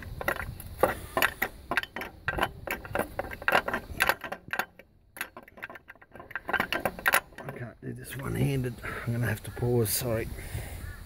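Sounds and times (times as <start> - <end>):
metallic clicks and clinks: 0.0 - 8.4.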